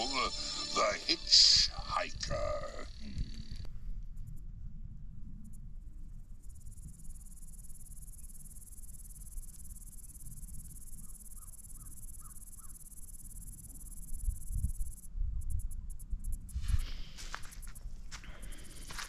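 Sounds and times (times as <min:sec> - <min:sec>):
steady high hiss: 0:00.0 - 0:03.2.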